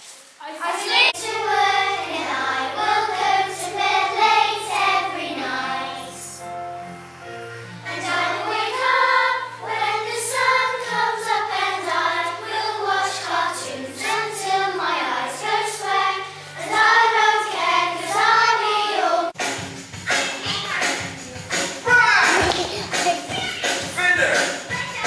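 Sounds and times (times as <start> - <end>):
children singing together: 0.6 - 6.6, 7.3 - 19.4.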